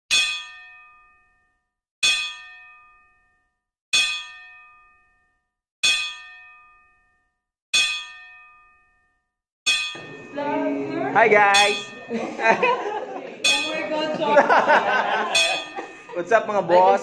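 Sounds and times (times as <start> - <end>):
metallic bell-like clang: 0.1 - 1.3, 2.0 - 3.3, 4.0 - 5.2, 5.8 - 7.2, 7.8 - 9.0, 9.7 - 12.3, 15.2 - 16.3.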